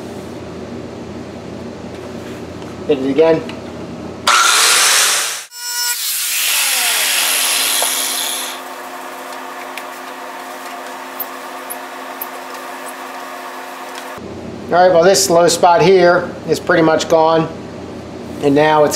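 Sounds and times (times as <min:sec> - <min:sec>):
angle grinder winding down: 0:04.3 - 0:14.2.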